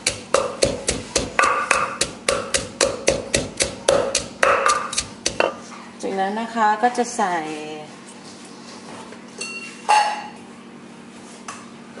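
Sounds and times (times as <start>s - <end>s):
pestle pounding in clay mortar: 0.0s - 5.7s.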